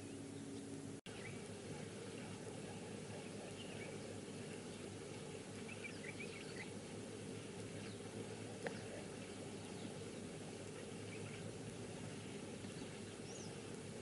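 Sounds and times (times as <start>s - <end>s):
faint bird chirps: 0.0s - 6.8s, 7.6s - 11.5s
faint background noise: 0.0s - 14.0s.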